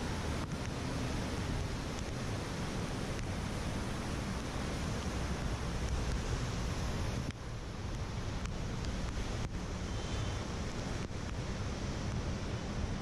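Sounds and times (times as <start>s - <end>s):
flooded river rushing: 0.0s - 13.0s.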